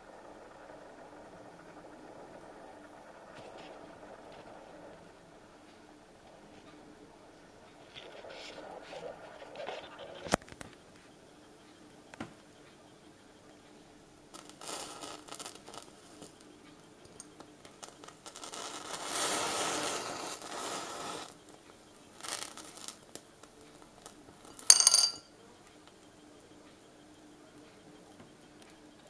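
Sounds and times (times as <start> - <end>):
match heads flaring hiss: 14.4 - 16.3, 17.8 - 21.4, 22.2 - 23.2
matchsticks crackling: 17.2 - 21.4, 22.2 - 24.2
coin clinking on glass: 24.6 - 25.3.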